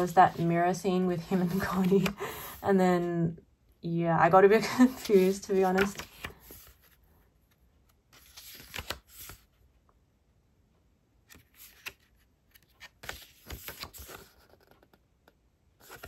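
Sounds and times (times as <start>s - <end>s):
paper pages rustling: 1.3s - 2.3s, 4.6s - 9.6s, 11.3s - 16.0s.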